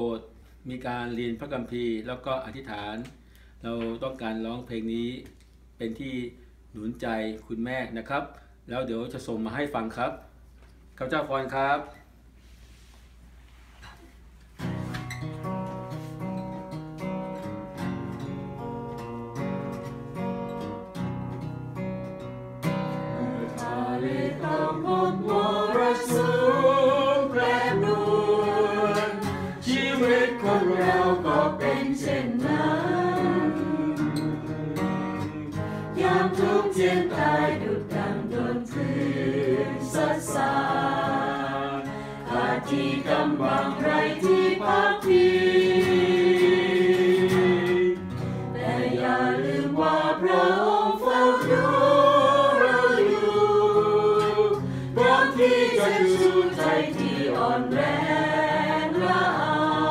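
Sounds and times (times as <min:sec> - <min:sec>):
acoustic guitar strumming: 0:14.6 - 0:59.9
group singing worship song: 0:22.9 - 0:59.9.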